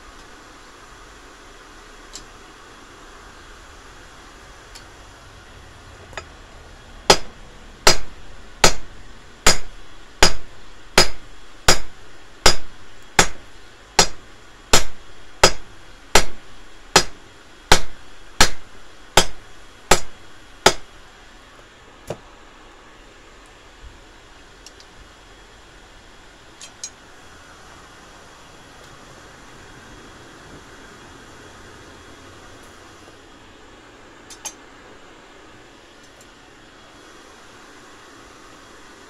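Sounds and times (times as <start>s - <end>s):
hammer striking metal on anvil: 7.1s - 13.4s, 14.0s - 20.9s.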